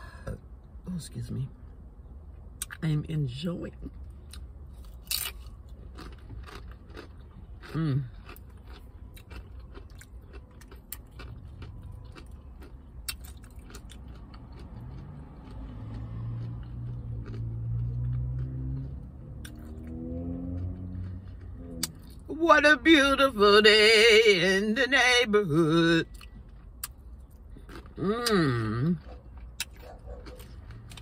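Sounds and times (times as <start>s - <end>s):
low steady hum: 0.0s - 31.0s
person chewing food: 4.0s - 22.3s, 26.0s - 31.0s
person saying mmm: 28.0s - 29.0s.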